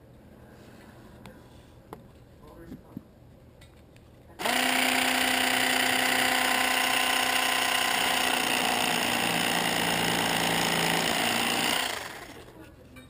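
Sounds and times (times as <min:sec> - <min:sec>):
electric slotting tool buzzing: 0:04.4 - 0:12.5.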